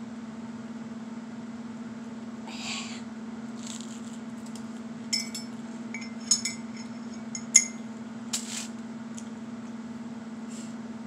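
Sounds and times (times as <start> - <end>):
steady low hum: 0.0 - 11.0
toast crunching being chewed: 3.5 - 4.9
metal utensil clinking crockery: 5.1 - 7.8.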